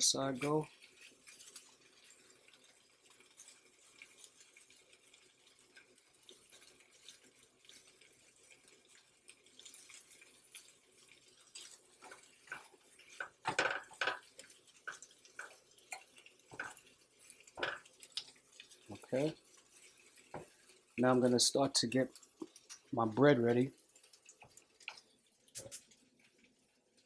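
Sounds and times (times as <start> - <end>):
meat sizzling on griddle: 0.0 - 27.0
spatula scraping griddle: 11.3 - 22.6.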